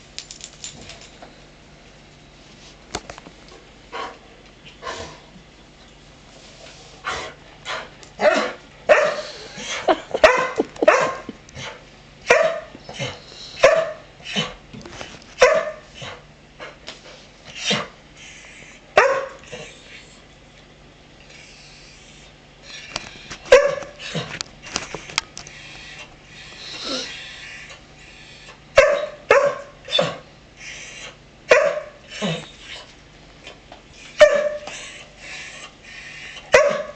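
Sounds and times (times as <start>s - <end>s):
dog barking: 8.2s - 9.3s, 10.2s - 11.3s, 12.2s - 12.7s, 13.6s - 14.1s, 15.4s - 15.8s, 19.0s - 19.4s, 23.5s - 24.0s, 28.8s - 30.1s, 31.5s - 32.0s, 34.2s - 34.7s, 36.5s - 36.9s.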